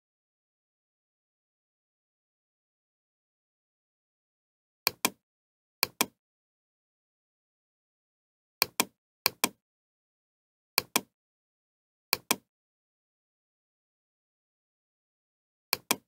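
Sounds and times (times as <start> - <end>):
computer mouse button clicking: 4.9 - 5.2, 5.8 - 6.2, 8.6 - 9.6, 10.8 - 11.1, 12.2 - 12.5, 15.8 - 16.0.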